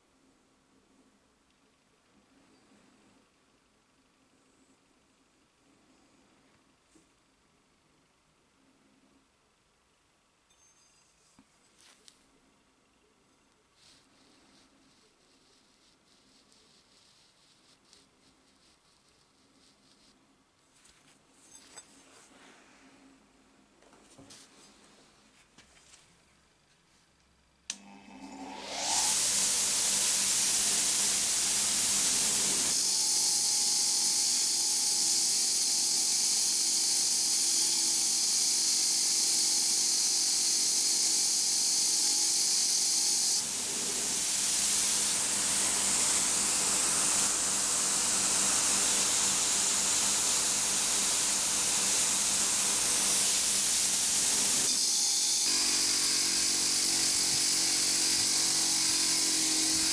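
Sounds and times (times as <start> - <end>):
bench grinder motor hum: 27.7 - 59.9.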